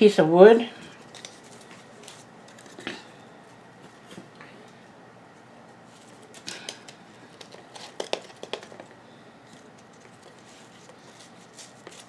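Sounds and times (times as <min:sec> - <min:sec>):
plastic pot clicks and crinkles: 0:06.3 - 0:08.9.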